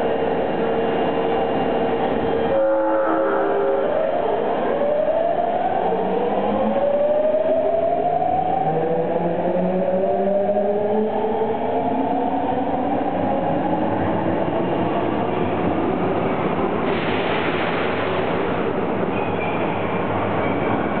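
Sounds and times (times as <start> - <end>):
subway train whine rising: 0.0 - 21.0
wheels rumbling on rail: 11.2 - 21.0.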